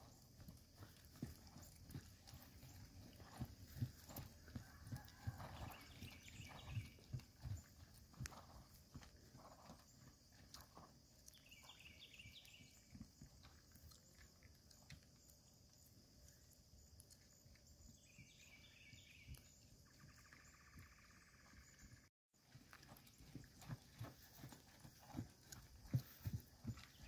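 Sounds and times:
horse hoofbeats on grass: 0:00.0 - 0:15.1, 0:22.4 - 0:27.0.

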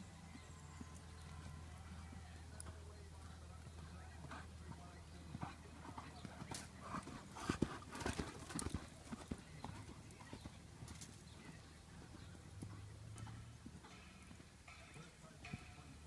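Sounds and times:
hoofbeats on sand: 0:00.2 - 0:16.0.

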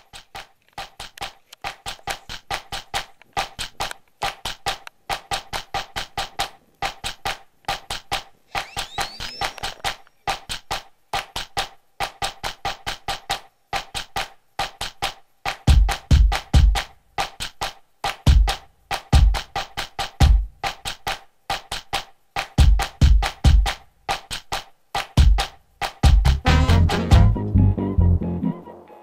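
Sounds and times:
rising whistle-like sweep: 0:08.5 - 0:09.7.

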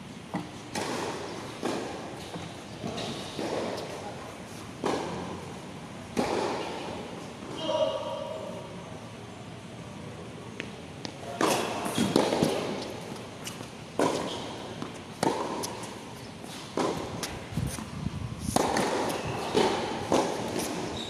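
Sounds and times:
tennis balls hit by rackets: 0:00.3 - 0:04.0, 0:04.8 - 0:05.4, 0:06.1 - 0:07.2, 0:10.6 - 0:17.4, 0:18.4 - 0:21.0.

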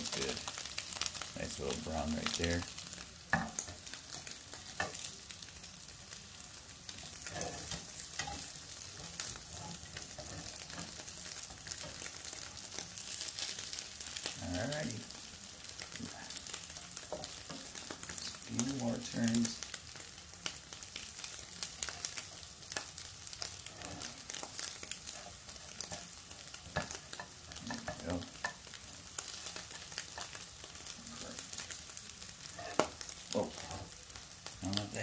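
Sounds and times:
eggs sizzling in frying pan: 0:00.0 - 0:35.0
spatula scraping pan: 0:07.0 - 0:13.1.

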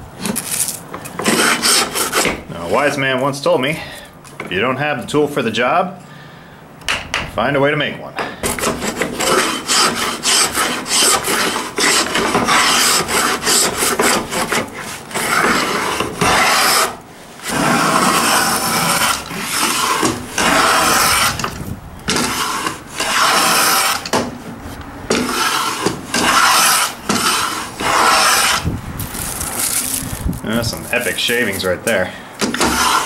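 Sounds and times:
plane cutting wood: 0:01.1 - 0:03.0, 0:08.4 - 0:24.3, 0:25.1 - 0:28.7, 0:32.4 - 0:33.0.

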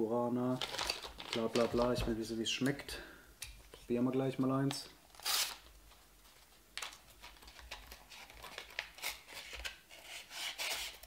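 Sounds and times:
paper crinkling: 0:00.6 - 0:02.2, 0:05.2 - 0:11.0.

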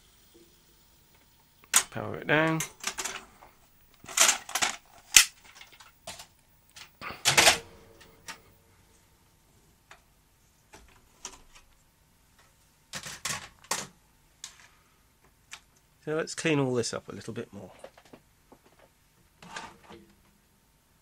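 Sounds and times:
plastic and metal parts clattering: 0:01.7 - 0:08.5, 0:12.9 - 0:14.7.

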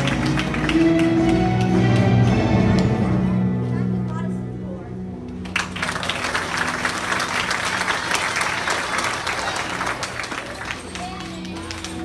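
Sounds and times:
audience applauding: 0:00.0 - 0:02.8, 0:05.4 - 0:12.0.

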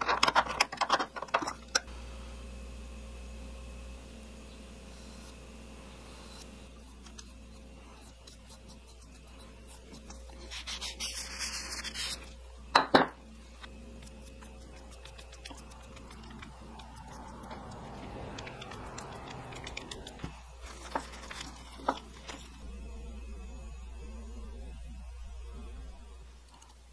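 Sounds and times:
cloth rag rubbing wood: 0:08.4 - 0:12.3.

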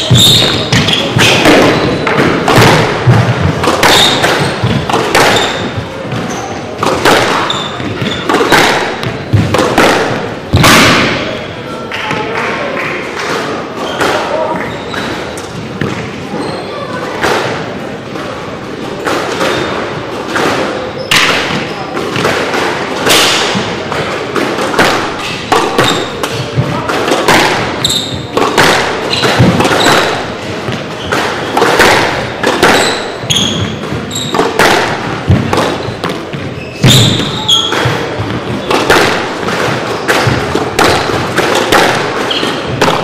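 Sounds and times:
shoes squeaking on wooden floor: 0:00.0 - 0:11.5, 0:13.8 - 0:17.0, 0:27.7 - 0:28.4, 0:29.0 - 0:31.7, 0:32.3 - 0:43.0
squash ball hitting rackets and walls: 0:00.0 - 0:43.0.

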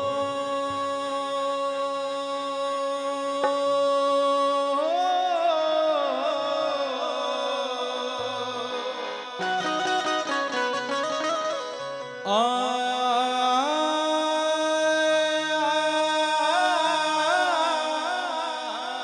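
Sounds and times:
harmonium: 0:00.0 - 0:19.0
man singing: 0:00.0 - 0:19.0
percussion beat: 0:03.4 - 0:03.8.

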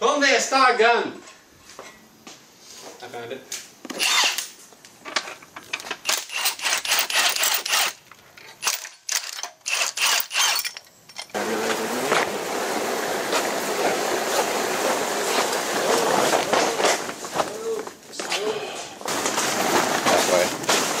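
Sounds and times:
impact gun rattling on bolts: 0:08.6 - 0:11.4.

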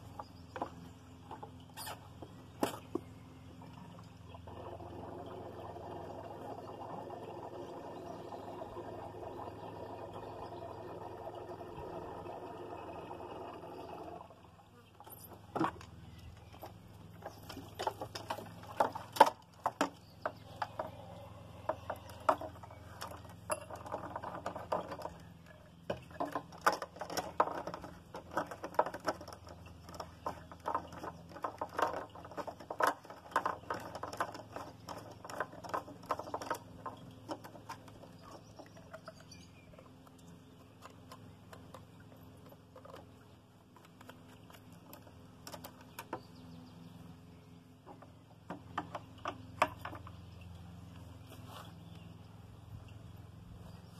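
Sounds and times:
fuel pouring into tank: 0:03.7 - 0:14.6.

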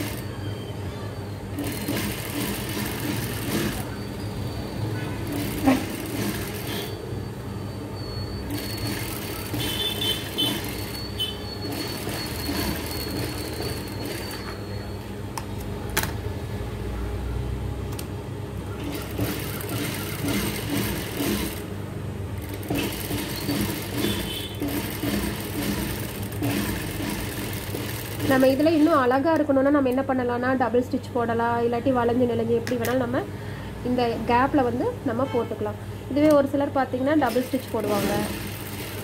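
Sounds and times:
sewing machine running: 0:00.0 - 0:00.3, 0:01.5 - 0:04.0, 0:05.2 - 0:07.0, 0:08.5 - 0:14.6, 0:18.8 - 0:21.7, 0:22.4 - 0:29.2, 0:37.2 - 0:39.0.

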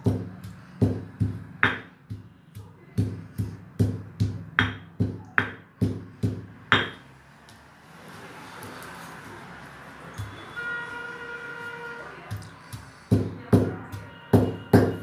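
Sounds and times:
stone pestle pounding in mortar: 0:00.0 - 0:07.0, 0:12.3 - 0:15.0.

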